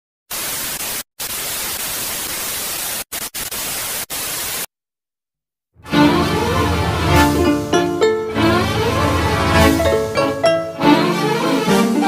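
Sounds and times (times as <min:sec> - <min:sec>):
electronic static hiss: 0:00.3 - 0:04.7.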